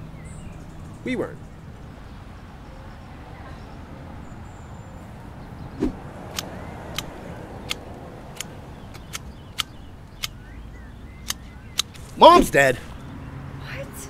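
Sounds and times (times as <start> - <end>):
low outdoor hum: 0.0 - 14.0
pruning shears snipping branches: 5.8 - 10.4.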